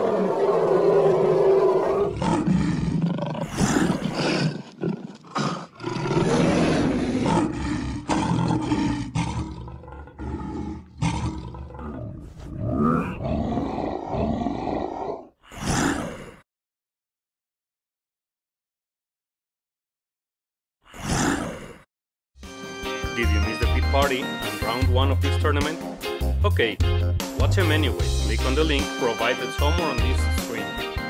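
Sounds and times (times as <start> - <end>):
monster roaring and growling: 0.0 - 16.4, 20.9 - 21.8.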